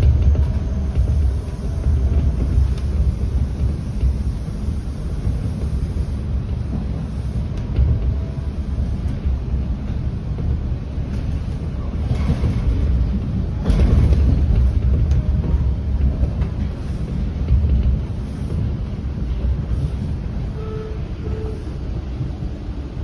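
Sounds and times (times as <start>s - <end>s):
subway train rumble: 0.0s - 23.0s
wheel and track noise: 0.0s - 23.0s.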